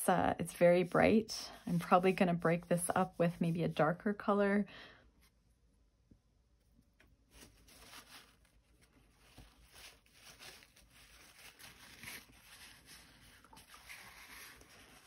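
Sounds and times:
brush stroking paper: 0.0 - 4.5, 7.0 - 15.0
brush dabbing paper towel: 0.5 - 4.5, 6.4 - 15.0.

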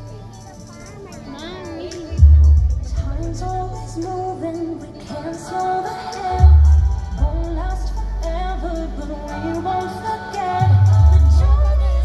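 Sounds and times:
pop song over loudspeakers: 0.0 - 12.0
deep low boom: 6.4 - 8.8.

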